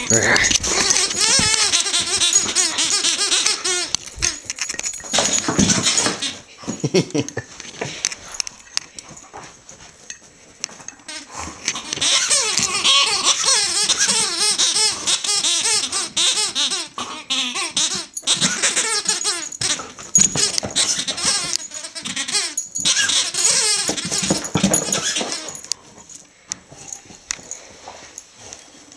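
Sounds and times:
dog chewing: 0:00.0 - 0:06.3, 0:17.6 - 0:27.6
squeaky toy squeaks: 0:00.0 - 0:06.4, 0:11.1 - 0:25.7.

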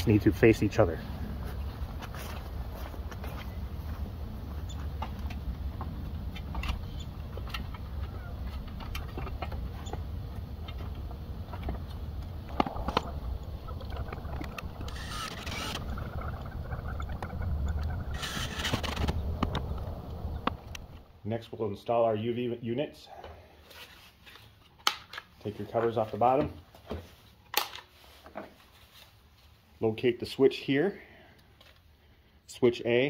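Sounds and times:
low outdoor rumble: 0:00.0 - 0:22.4.

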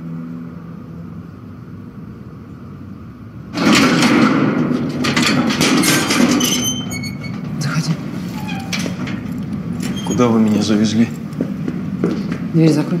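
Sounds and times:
low background noise: 0:00.0 - 0:13.0
door rattling and clanking: 0:03.5 - 0:11.6.

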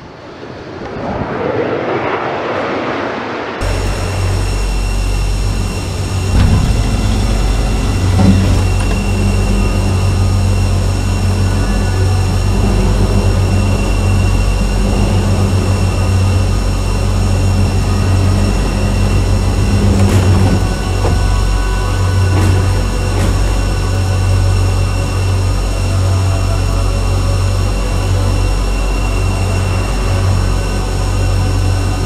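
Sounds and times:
faint high whine: 0:00.0 - 0:32.0
jet aircraft rumble: 0:00.0 - 0:32.0
loud bump: 0:05.2 - 0:10.5.

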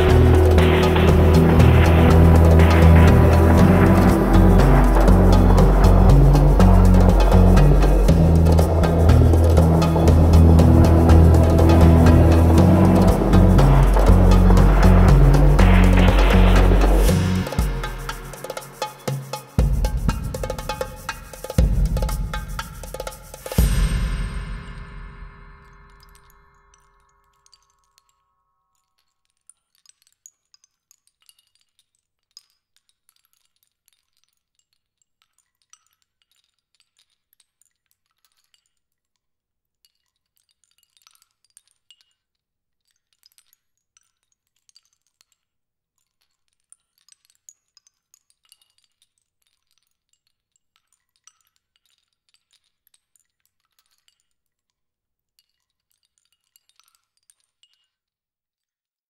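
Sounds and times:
glassy tinkling and clinking: 0:55.4 - 0:58.0.

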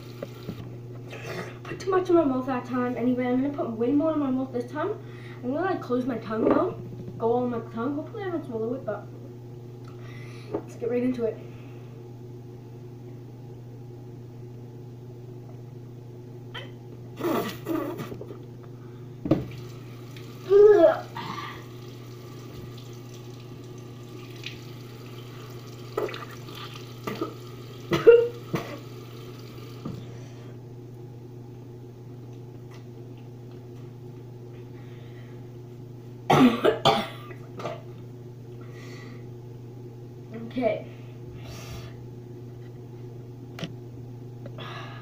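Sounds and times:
boy coughing: 0:01.1 - 0:01.6, 0:16.6 - 0:18.1, 0:27.9 - 0:28.8, 0:36.3 - 0:37.4
low hum: 0:03.7 - 0:19.2.

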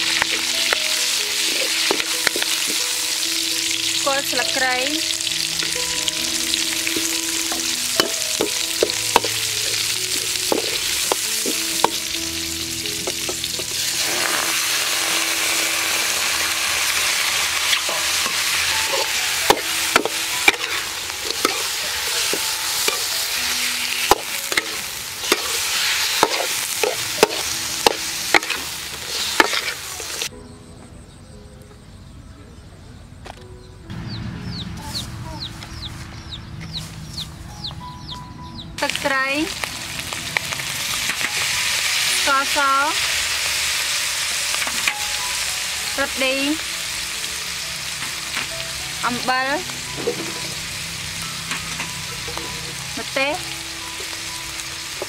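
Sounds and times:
food sizzling in wok: 0:00.0 - 0:30.3, 0:38.8 - 0:55.0
metal ladle scraping wok: 0:05.2 - 0:30.3.

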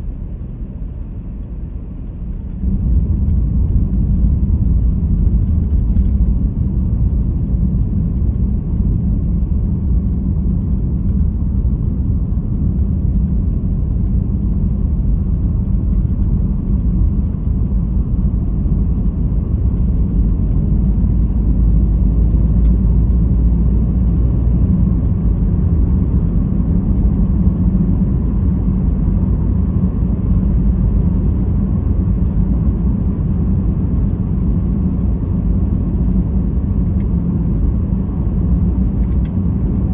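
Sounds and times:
car driving rumble: 0:00.0 - 0:39.9.

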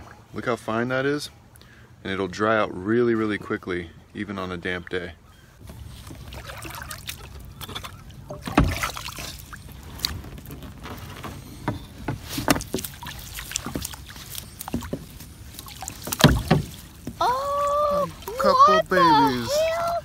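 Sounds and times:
water splashing and dripping: 0:05.6 - 0:11.2, 0:12.0 - 0:20.0
wet rope being hauled: 0:05.6 - 0:20.0.

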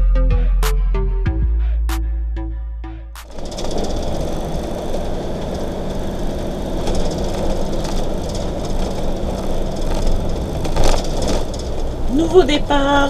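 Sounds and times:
vehicle engine: 0:03.0 - 0:13.0
road noise inside cab: 0:03.2 - 0:13.0.

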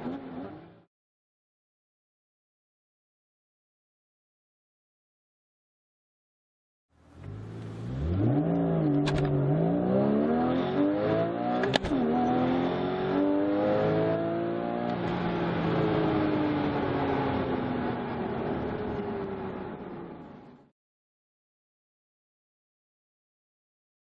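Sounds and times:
car engine revving and accelerating: 0:00.0 - 0:00.9, 0:07.0 - 0:20.5
gear shift click: 0:08.5 - 0:09.4, 0:11.6 - 0:12.0.

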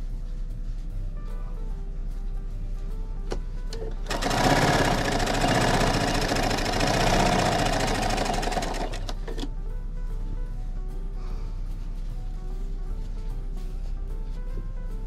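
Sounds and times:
sewing machine stitching: 0:03.8 - 0:09.5.

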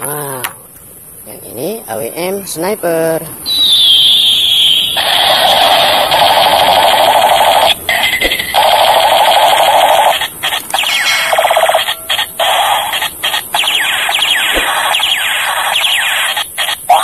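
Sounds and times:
harsh electronic hiss: 0:00.9 - 0:17.0
falling laser-like tones: 0:03.4 - 0:17.0.

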